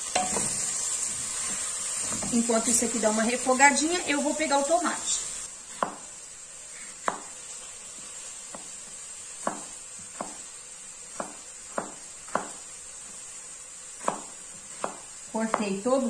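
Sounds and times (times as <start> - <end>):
knife chopping on plastic board: 5.7 - 6.1, 7.0 - 7.4, 9.4 - 10.4, 11.1 - 12.6, 14.0 - 15.7.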